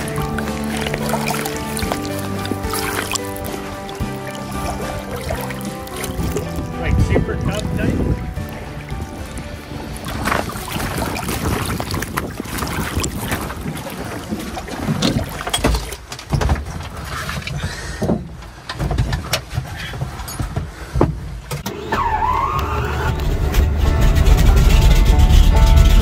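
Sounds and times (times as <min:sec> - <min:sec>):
water: 0:00.0 - 0:26.0
wind noise: 0:06.1 - 0:15.4.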